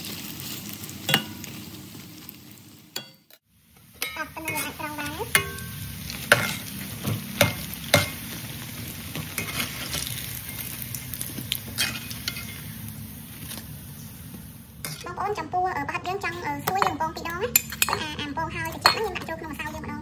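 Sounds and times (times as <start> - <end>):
oil sizzling in wok: 0.0 - 20.0
metal tongs knocking wok: 1.1 - 1.6, 3.0 - 8.3, 11.7 - 12.6, 14.8 - 15.2, 16.3 - 19.8.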